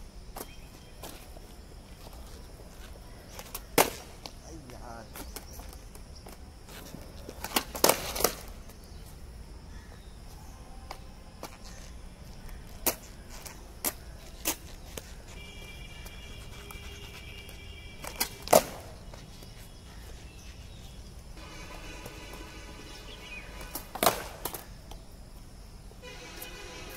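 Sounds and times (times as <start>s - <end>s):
skateboard clacks on concrete: 3.3s - 4.4s, 5.1s - 8.8s, 16.1s - 19.6s, 23.7s - 25.0s.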